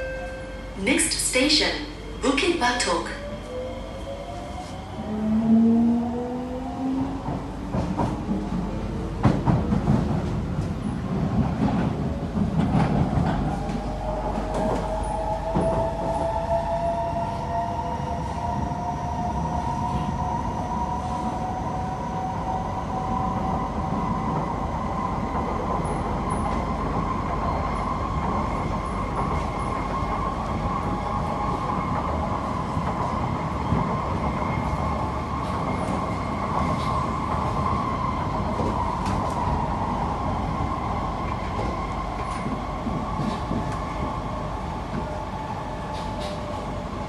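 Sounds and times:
train wheels rumbling on rail: 0.0s - 47.0s.

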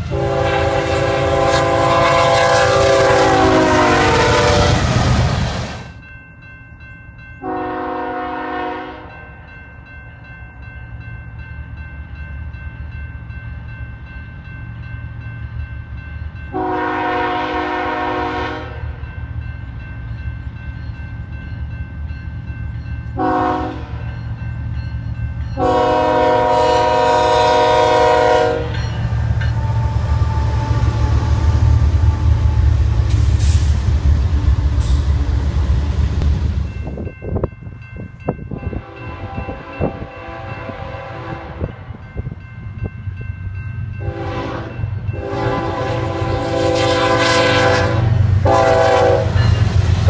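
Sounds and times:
locomotive horn chord: 0.0s - 5.1s, 7.4s - 9.2s, 16.5s - 19.0s, 23.2s - 24.1s, 25.6s - 28.9s, 38.7s - 41.9s, 44.0s - 49.5s
diesel locomotive rumble: 0.0s - 6.1s, 12.5s - 50.0s.

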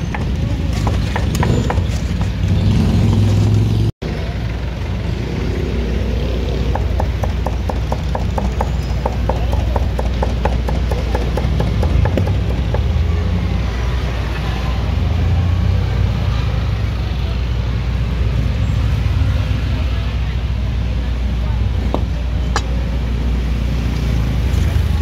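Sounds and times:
street traffic: 0.0s - 25.0s
cleaver chopping on wooden block: 6.7s - 13.0s.

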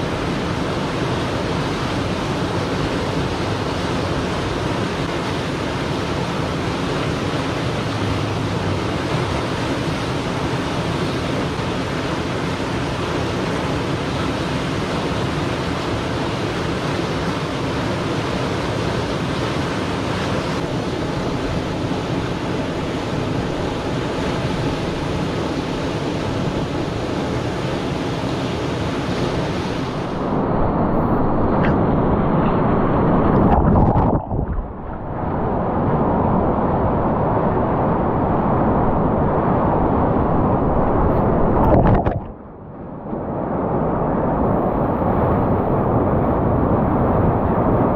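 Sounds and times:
whitewater rushing: 0.0s - 38.8s, 39.4s - 42.4s
water splashing over camera: 33.1s - 35.5s, 41.2s - 42.4s.

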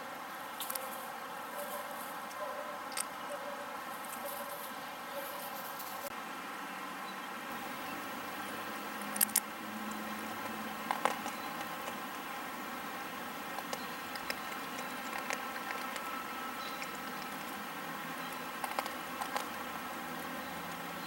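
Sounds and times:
background hiss: 0.0s - 21.0s
rabbit crunching candy: 7.6s - 21.0s.

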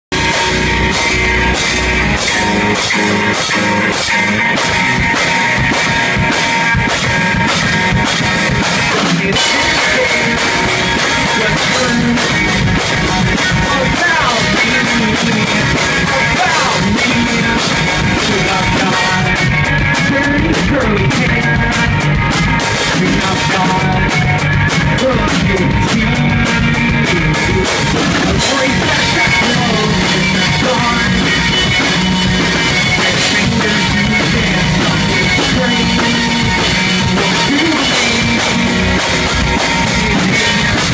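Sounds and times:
distorted electric guitars: 0.0s - 40.9s
drum kit beat with cymbals: 0.1s - 40.9s
person singing into microphone: 8.8s - 38.8s, 39.8s - 40.9s.

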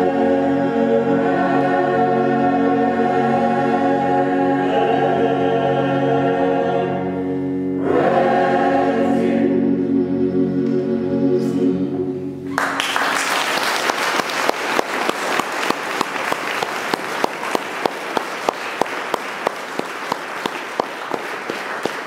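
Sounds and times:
choir singing held chord: 0.0s - 12.4s
audience rhythmic clapping: 12.5s - 22.0s.

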